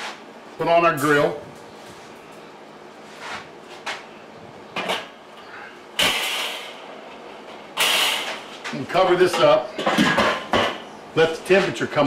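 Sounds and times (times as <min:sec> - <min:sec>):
metal grate clattering: 0:06.0 - 0:06.8, 0:07.5 - 0:10.8.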